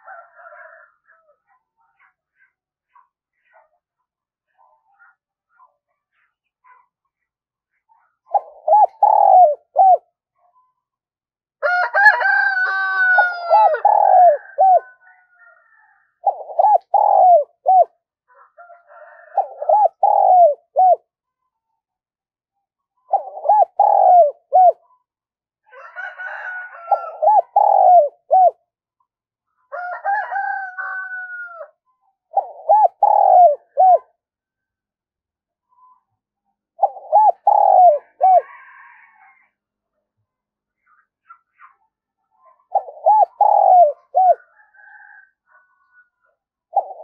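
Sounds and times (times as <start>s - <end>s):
dove cooing: 0.0s - 1.4s, 8.3s - 10.2s, 11.9s - 21.1s, 23.1s - 25.0s, 25.7s - 28.6s, 29.9s - 34.2s, 36.8s - 39.4s, 42.4s - 46.1s, 46.7s - 47.0s.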